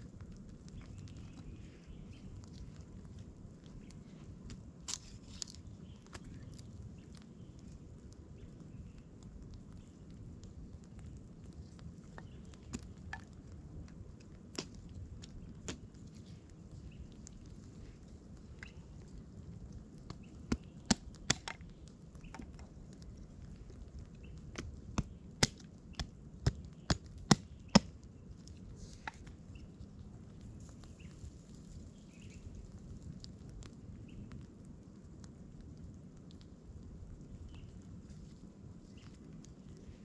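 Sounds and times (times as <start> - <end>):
dry twigs snapping: 0.1 - 34.2.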